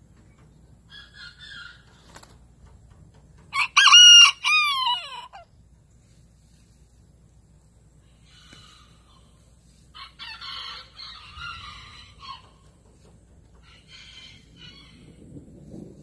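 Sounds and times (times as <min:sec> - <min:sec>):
rough chicken calls: 0:03.5 - 0:05.5, 0:08.0 - 0:13.0, 0:13.6 - 0:15.2.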